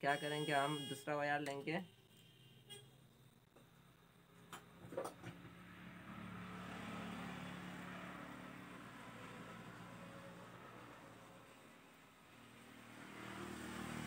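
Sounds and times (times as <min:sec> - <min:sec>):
vehicle passing by: 0:05.4 - 0:14.0.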